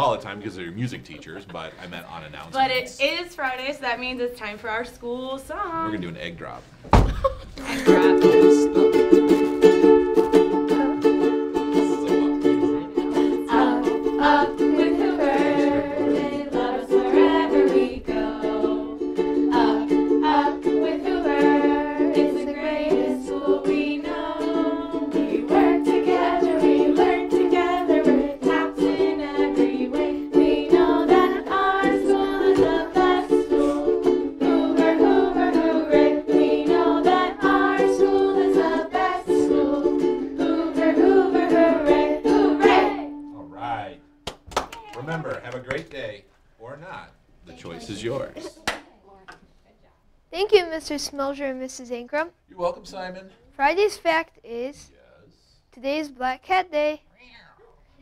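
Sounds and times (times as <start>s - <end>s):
ukuleles strummed: 7.1s - 43.4s
people singing: 7.6s - 43.3s.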